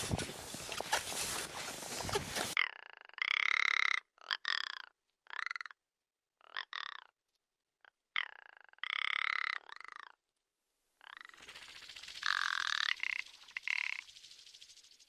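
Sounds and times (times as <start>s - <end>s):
short rattling animal calls: 0.0s - 2.6s, 11.0s - 15.0s.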